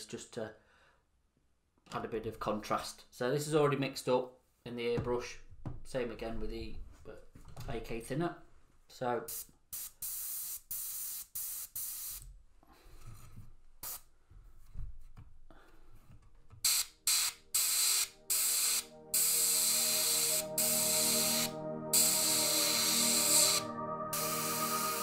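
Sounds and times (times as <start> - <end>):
airbrush spraying air hiss: 9.3 - 12.3, 13.8 - 14.1, 16.6 - 25.0.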